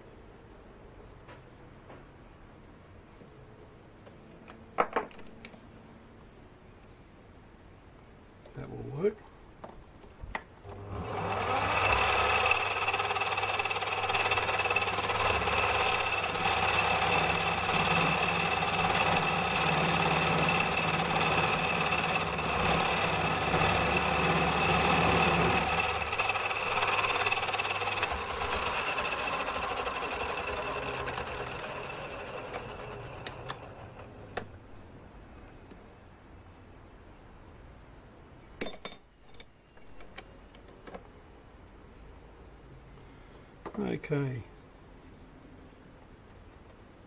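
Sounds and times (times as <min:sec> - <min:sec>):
metal lathe motor whine: 0:10.8 - 0:34.1.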